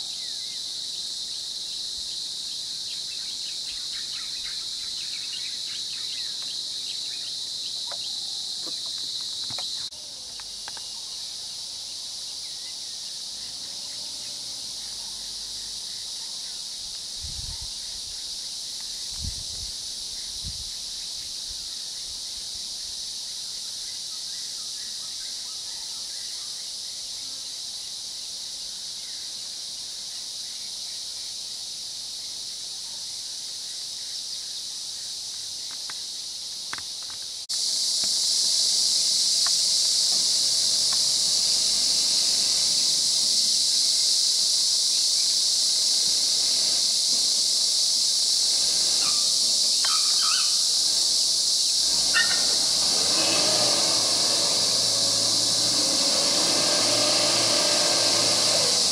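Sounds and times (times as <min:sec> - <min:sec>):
insects buzzing chorus: 0:00.0 - 0:58.9
faint bird chirps: 0:02.5 - 0:09.0, 0:49.0 - 0:50.7.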